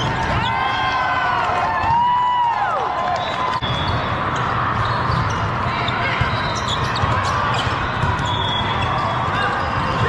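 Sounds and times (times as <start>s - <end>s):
volleyball hits and bounces: 6.1s - 10.0s.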